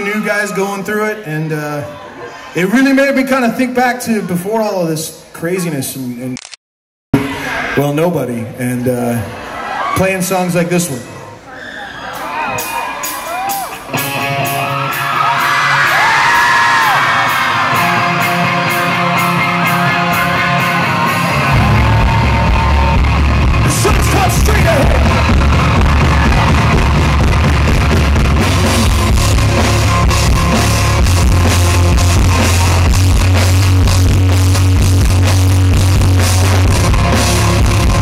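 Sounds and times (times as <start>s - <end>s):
bass and drums: 12.6s - 38.0s
distorted electric guitars: 13.7s - 38.0s.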